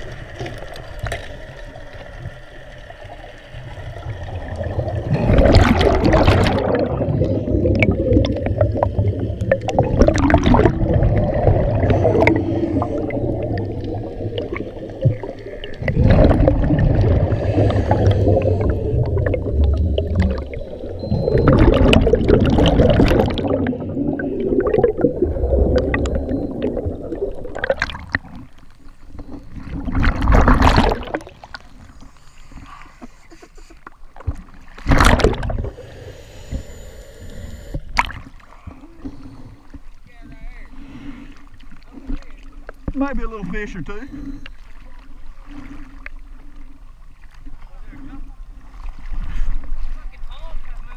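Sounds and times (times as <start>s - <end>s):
underwater scuba bubbles rushing: 0.0s - 32.7s, 33.9s - 39.9s
water sloshing: 4.4s - 35.7s.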